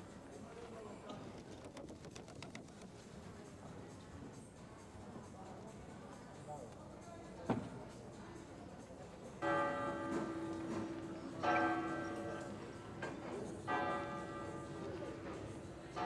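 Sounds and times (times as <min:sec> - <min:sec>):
large church bell tolling: 0:09.4 - 0:16.0.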